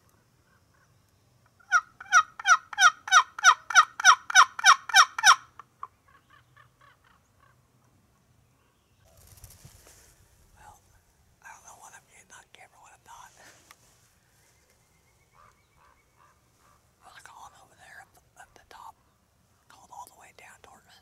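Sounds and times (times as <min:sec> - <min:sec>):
turkey yelps: 0:01.7 - 0:07.5.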